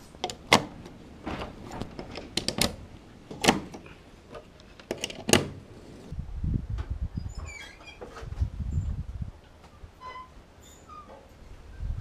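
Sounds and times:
sharp handling clicks and knocks: 0.0s - 5.7s.

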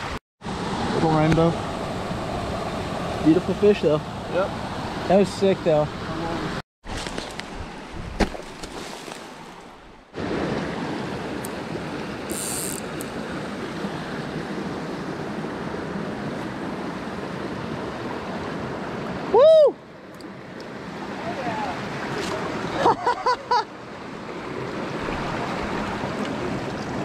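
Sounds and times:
creek running over rocks: 5.2s - 14.7s, 24.4s - 27.0s.

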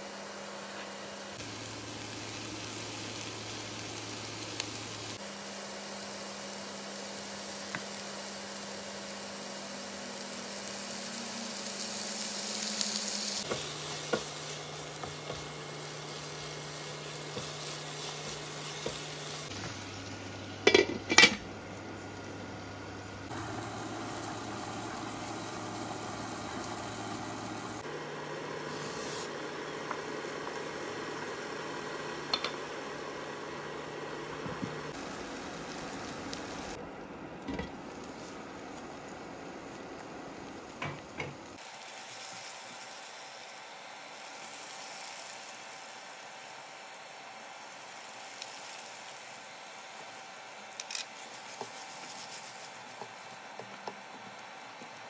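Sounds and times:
vegetables sizzling in a frying pan: 0.0s - 36.8s, 37.5s - 55.0s
utensils clinking against pan: 20.6s - 21.5s
spatula stirring in pan: 51.2s - 54.2s.

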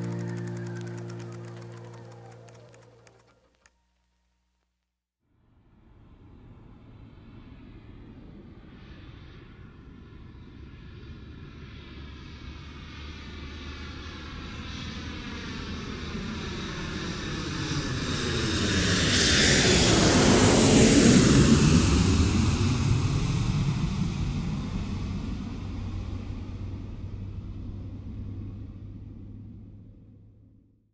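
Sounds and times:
vehicle engine drone passing by: 0.0s - 3.3s, 10.5s - 30.6s.

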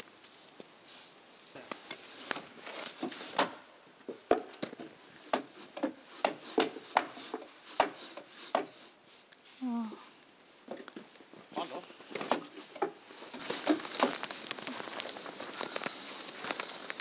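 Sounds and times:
snow tool scraping wooden steps: 1.7s - 9.3s.

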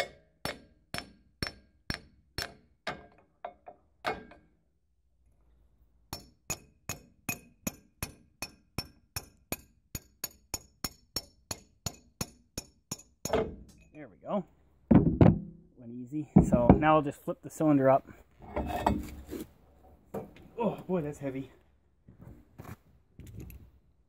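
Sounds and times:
hammer striking steel pin: 0.0s - 4.4s, 6.1s - 14.0s.

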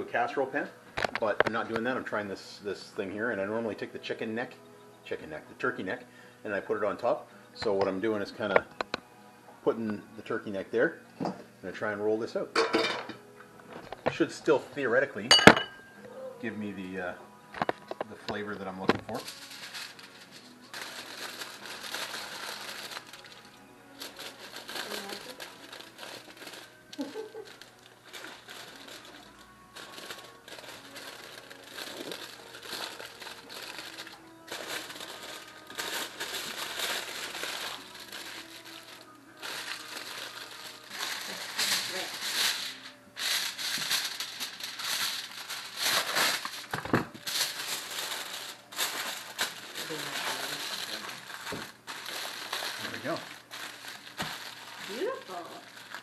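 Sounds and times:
aluminum foil crinkling: 17.6s - 56.0s.

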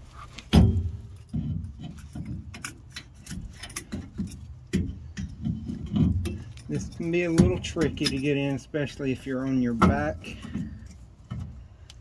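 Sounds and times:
metal clunks and clicks: 0.4s - 8.7s
light metal clinks: 1.1s - 8.6s.

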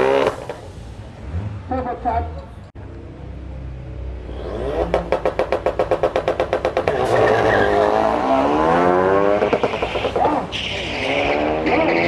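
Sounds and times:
cars accelerating away: 0.0s - 2.5s, 3.8s - 12.0s
engine stuttering on rev limiter: 4.4s - 12.0s.

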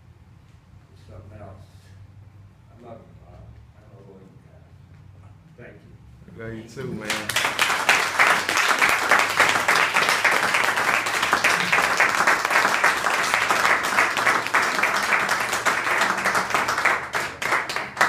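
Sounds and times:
people applauding: 6.8s - 18.0s.

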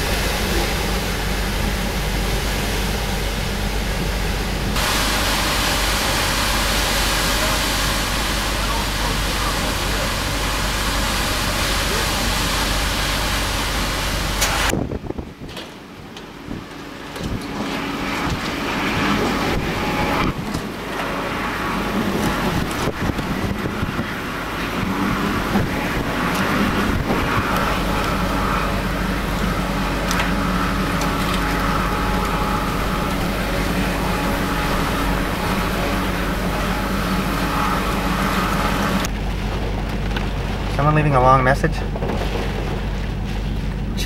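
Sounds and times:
wind and driving rain rushing: 0.0s - 44.0s
faint steady whine: 16.1s - 42.0s.

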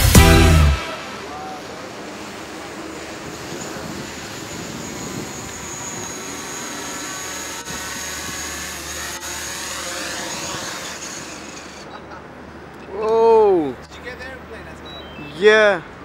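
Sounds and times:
drone propellers buzzing: 0.0s - 11.9s.

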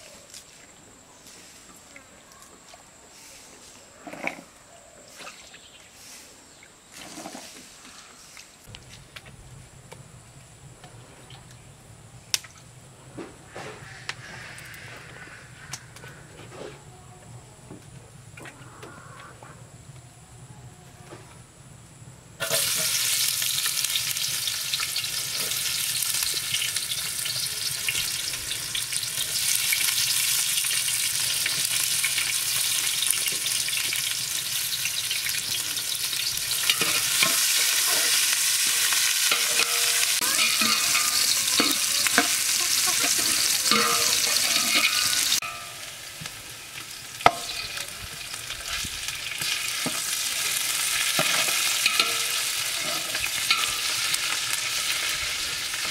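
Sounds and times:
onions sizzling in hot fat: 22.4s - 55.9s
metal ladle clinking against pot: 39.3s - 45.8s, 51.2s - 54.0s.

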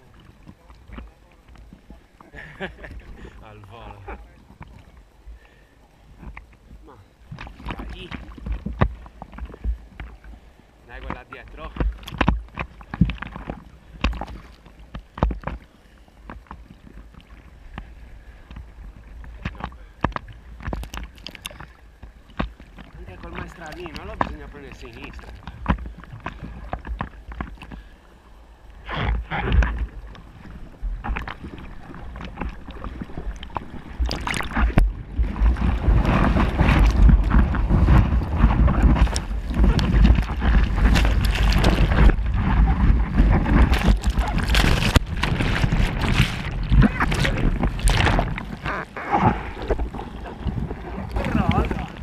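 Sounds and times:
churning surf water rushing: 0.0s - 52.0s
sea water sloshing and splashing: 0.0s - 52.0s
wind buffeting on microphone: 28.8s - 52.0s.

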